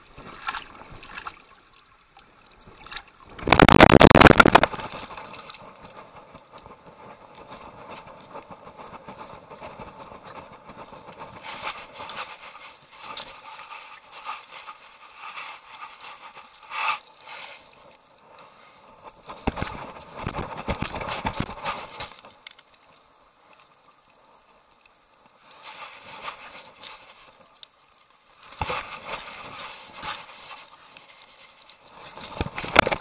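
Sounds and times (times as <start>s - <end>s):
water splashing: 0.0s - 6.6s
camera rustling and scraping: 19.3s - 22.3s, 28.5s - 33.0s.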